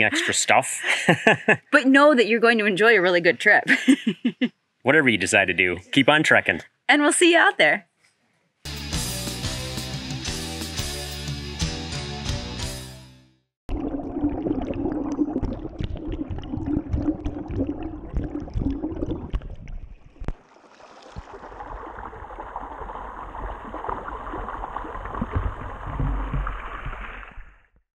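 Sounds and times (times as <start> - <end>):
underwater bubbling and gurgling: 13.7 - 27.7
water rushing over stones: 14.6 - 27.6.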